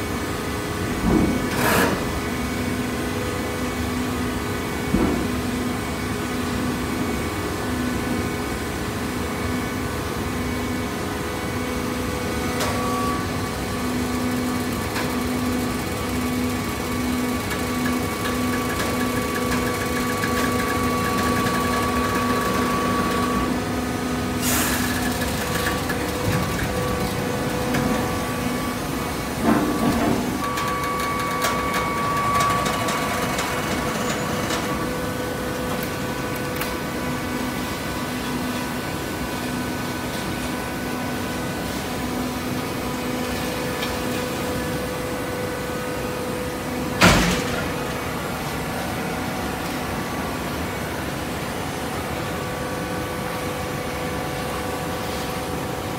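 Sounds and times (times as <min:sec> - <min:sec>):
baler machine hum: 0:11.5 - 0:38.8.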